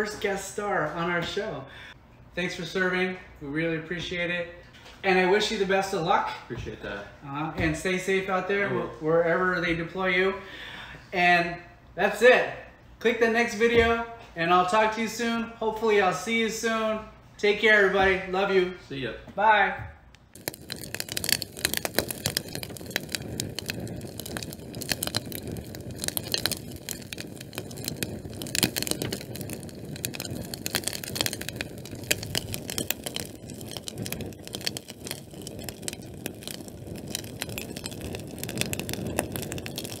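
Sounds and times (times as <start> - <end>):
fire crackling: 20.1 - 40.0.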